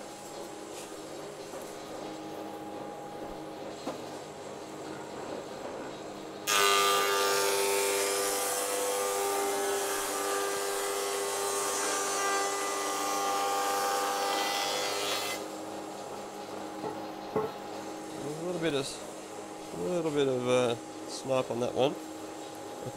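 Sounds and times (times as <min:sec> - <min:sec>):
planer cutting wood board: 0:06.5 - 0:15.4.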